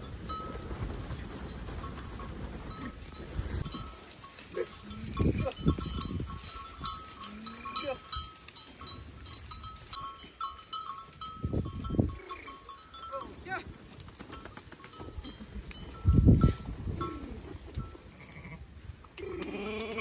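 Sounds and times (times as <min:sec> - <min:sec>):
sheep jostling: 0:00.0 - 0:18.2
small bells tinkling: 0:01.4 - 0:13.6, 0:14.3 - 0:17.9
sheep bleating: 0:18.1 - 0:20.0.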